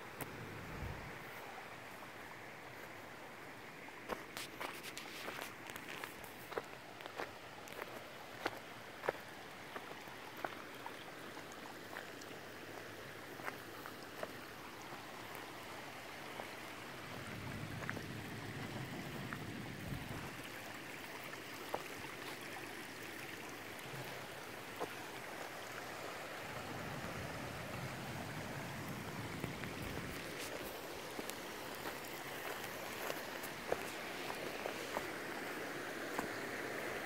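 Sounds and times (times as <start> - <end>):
footsteps on gravel: 4.1 - 9.2, 29.8 - 35.1.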